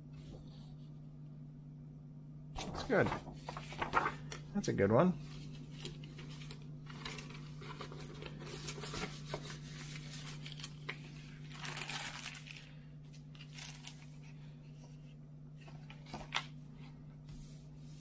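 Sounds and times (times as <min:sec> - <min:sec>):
paper rustling: 0:02.6 - 0:04.5, 0:05.2 - 0:15.0, 0:15.6 - 0:18.0.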